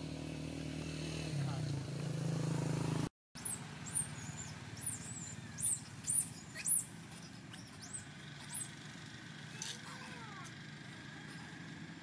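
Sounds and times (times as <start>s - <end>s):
high-pitched animal squeaks: 3.4s - 8.7s.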